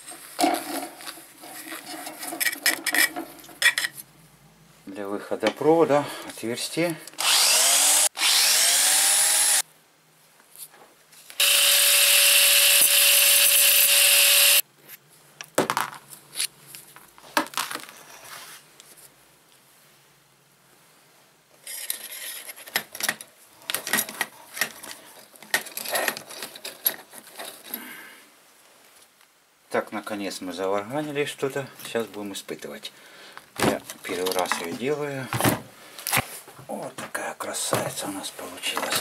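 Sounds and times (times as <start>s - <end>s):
small metal parts clattering: 0.4s - 4.0s, 21.6s - 27.8s
electric drill boring metal: 7.2s - 9.6s, 11.4s - 14.6s.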